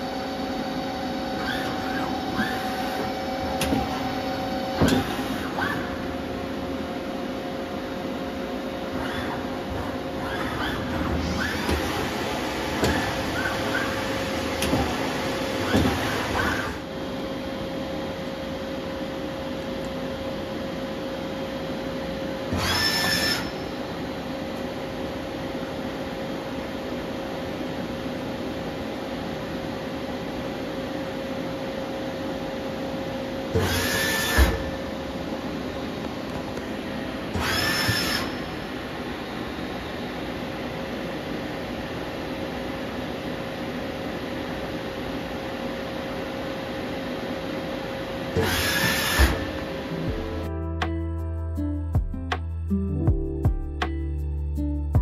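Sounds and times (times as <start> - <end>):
axis motor whines: 0.0 - 6.3, 8.8 - 16.9, 22.5 - 23.8, 33.5 - 35.1, 37.3 - 39.0, 48.3 - 49.7
machine tool humming: 0.0 - 24.6, 33.5 - 40.7.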